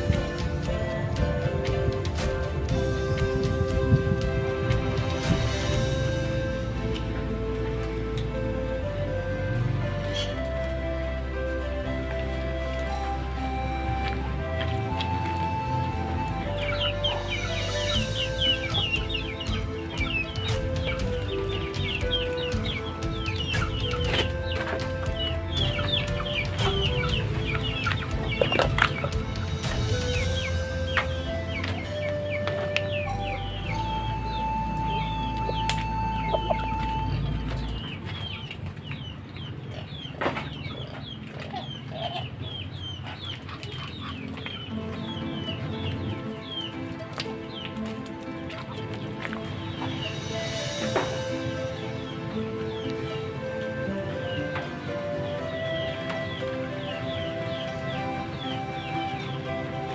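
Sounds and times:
chickens clucking: 0.0s - 10.8s, 11.6s - 59.9s
music of held notes: 0.0s - 59.9s
high-pitched bird chirps: 16.5s - 46.8s.

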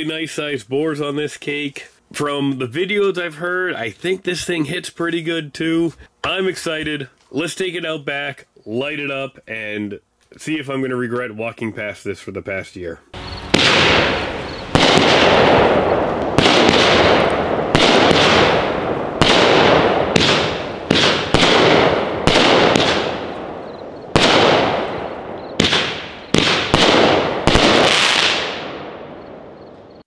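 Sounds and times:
firework reports: 0.0s - 30.0s
firework crackling: 13.2s - 29.2s.

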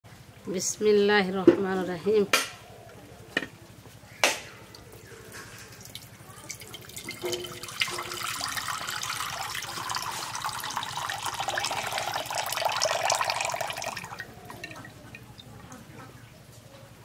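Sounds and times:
water pouring and splashing: 5.3s - 15.7s.

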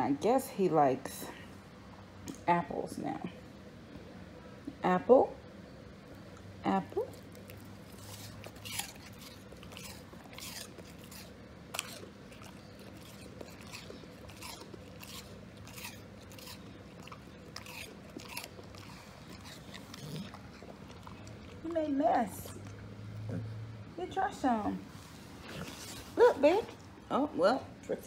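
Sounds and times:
dog crunching apple: 6.2s - 23.6s, 25.4s - 27.0s.

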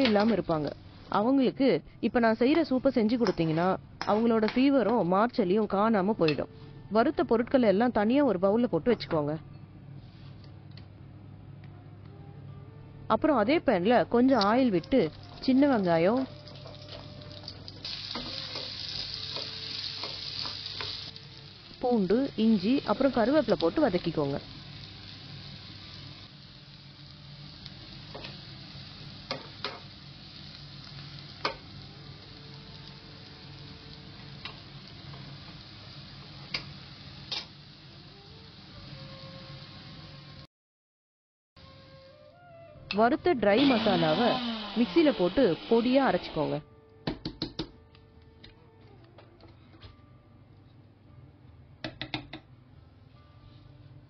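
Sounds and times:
food sizzling in oil: 14.9s - 40.4s, 43.6s - 46.6s.

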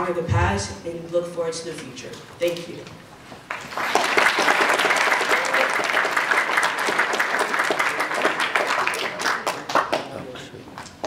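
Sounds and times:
audience applauding: 3.5s - 10.5s.

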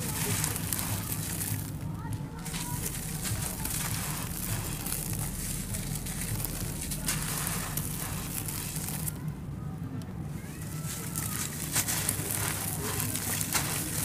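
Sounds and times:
sand grains pouring down: 0.0s - 1.8s, 2.4s - 9.2s, 10.9s - 14.0s
blocks crumbling in hands: 0.0s - 9.2s, 10.8s - 14.0s.

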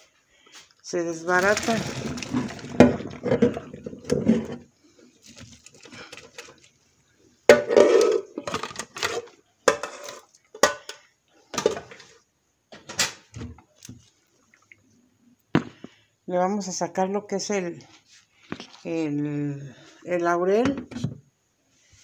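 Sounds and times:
colander clattering in steel sink: 1.2s - 4.7s, 7.5s - 10.9s.

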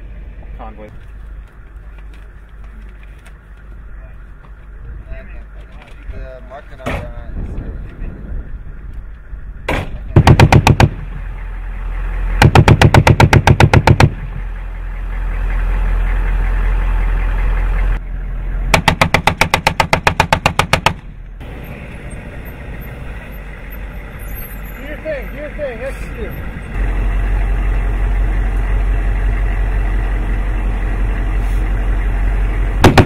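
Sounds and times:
vehicle engine running: 0.0s - 33.0s
machine gun firing bursts: 10.2s - 11.0s.

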